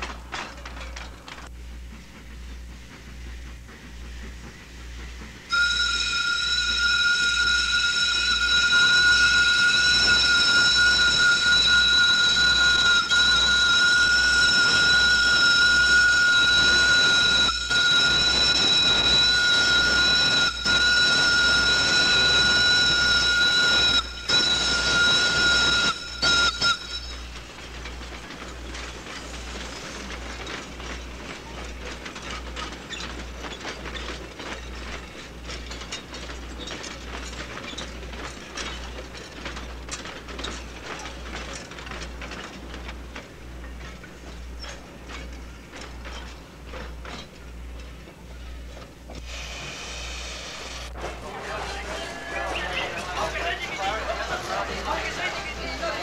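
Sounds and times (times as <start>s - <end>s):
steam locomotive whistle: 5.5s - 27.3s.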